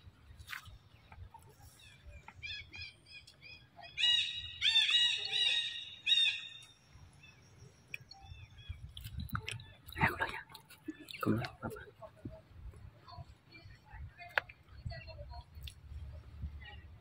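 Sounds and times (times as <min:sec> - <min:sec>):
bird chirping: 0:00.3 - 0:10.1.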